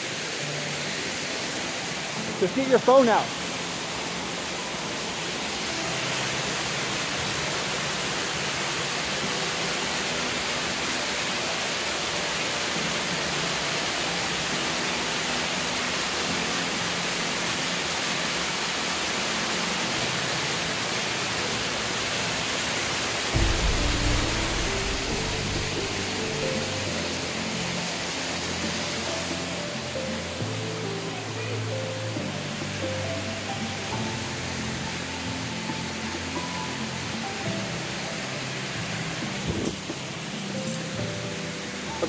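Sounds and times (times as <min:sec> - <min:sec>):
waterfall splashing into pool: 0:00.0 - 0:42.0
low microphone rumble: 0:23.4 - 0:26.3.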